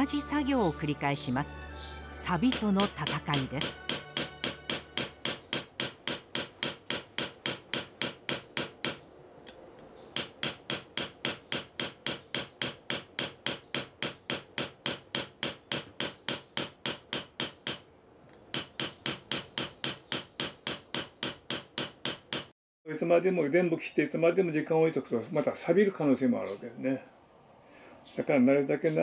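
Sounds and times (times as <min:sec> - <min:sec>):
hammer tapping chisel on iron: 0:02.4 - 0:09.0, 0:10.1 - 0:22.5.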